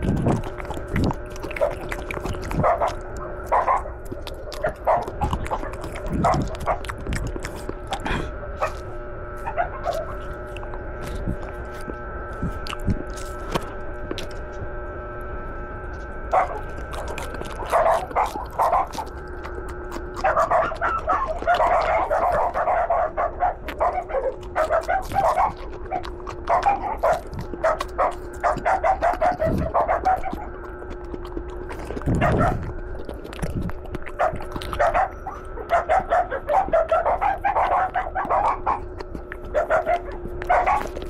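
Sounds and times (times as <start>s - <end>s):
chewing crunchy leaves: 0.0s - 41.0s
dog yipping and whining: 20.2s - 30.5s, 34.2s - 38.9s.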